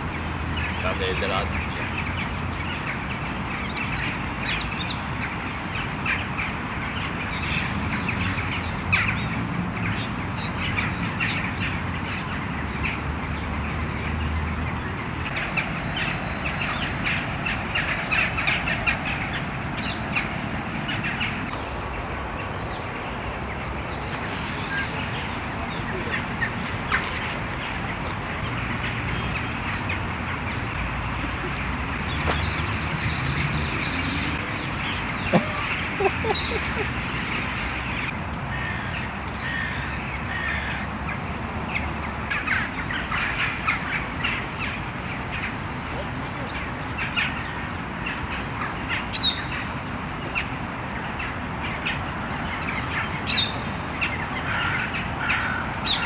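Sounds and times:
crow-like caws: 0:38.5 - 0:41.1, 0:54.4 - 0:56.0.

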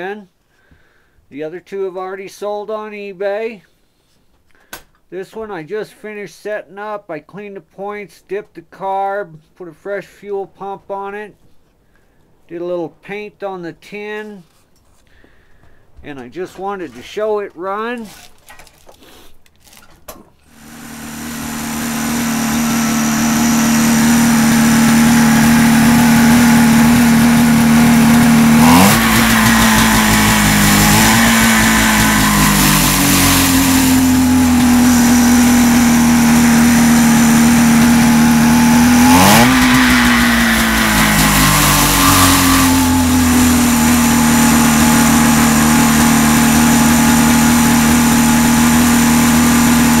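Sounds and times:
two-stroke engine running and revving: 0:20.5 - 0:50.0.

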